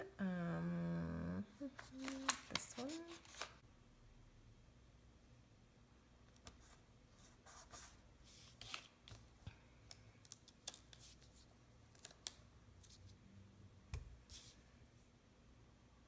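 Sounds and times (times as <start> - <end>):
sticker sheets rustling: 1.7 - 3.6.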